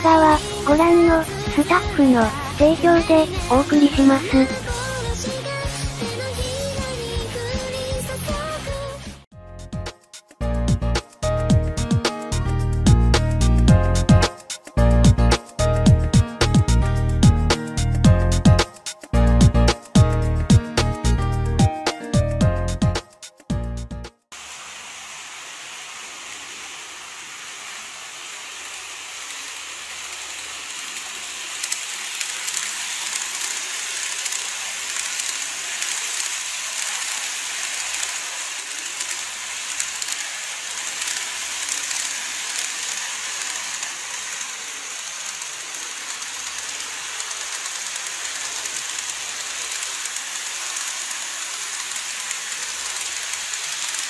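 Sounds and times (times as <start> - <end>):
model trains rattling on track: 28.6 - 54.0.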